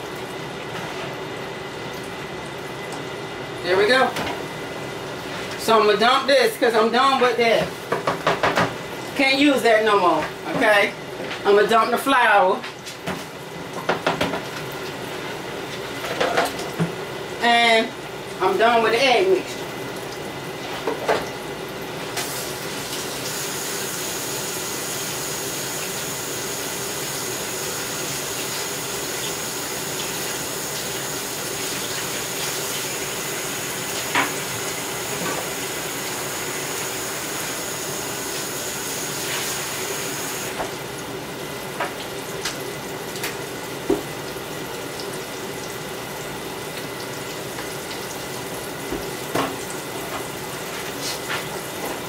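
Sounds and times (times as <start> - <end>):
tap running into a sink: 33.9 - 34.4, 43.2 - 44.1.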